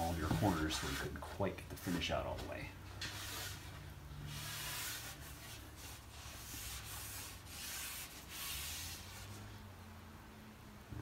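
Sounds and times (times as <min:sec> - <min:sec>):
rag rubbing on wooden board: 0:00.0 - 0:02.0, 0:04.3 - 0:09.4.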